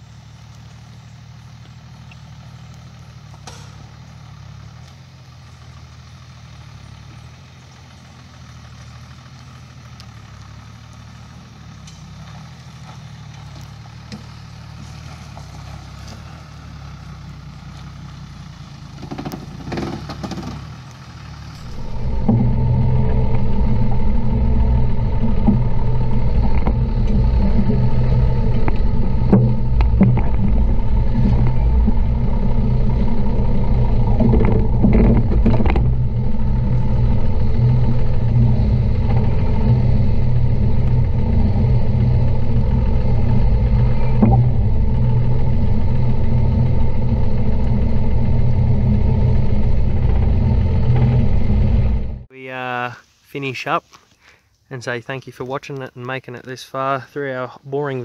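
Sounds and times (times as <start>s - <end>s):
car engine droning: 0.0s - 52.3s
knocks and rattles over bumps: 18.8s - 20.9s, 21.5s - 52.3s.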